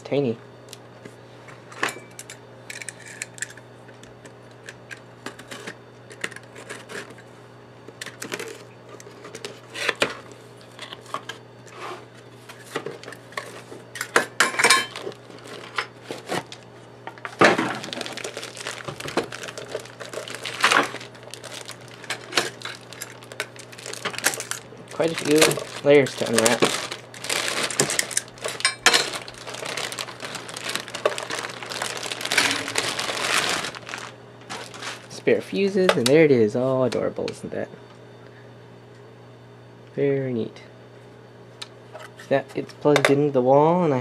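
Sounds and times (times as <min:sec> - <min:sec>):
steady low hum: 0:00.0 - 0:44.0
plastic wrapping crinkling: 0:14.9 - 0:16.6, 0:17.2 - 0:35.2.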